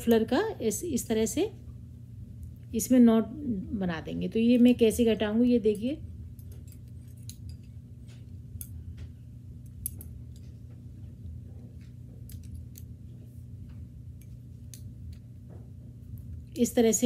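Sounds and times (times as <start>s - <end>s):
steady low hum: 0.0s - 17.0s
knitting needles clicking: 9.7s - 10.4s, 12.2s - 12.9s.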